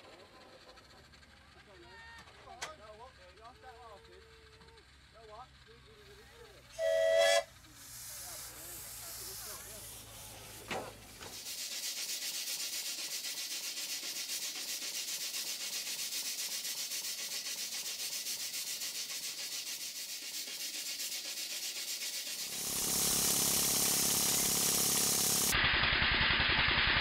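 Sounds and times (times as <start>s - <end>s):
steam engine exhaust hiss: 4.0s - 27.0s
steam engine running beat: 6.8s - 10.6s, 11.3s - 25.6s.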